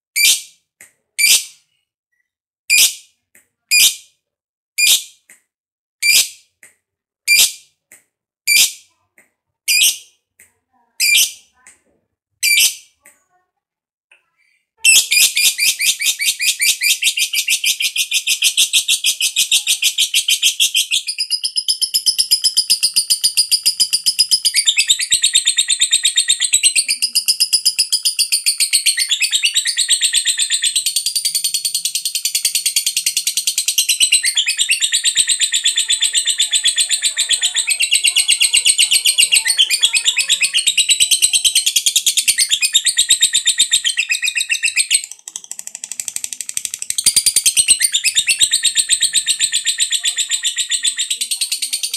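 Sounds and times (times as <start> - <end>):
high-pitched chattering bird trill: 9.7 - 10.1, 11.0 - 11.5, 12.4 - 12.9, 14.8 - 51.9
bird chirp: 14.9 - 51.9.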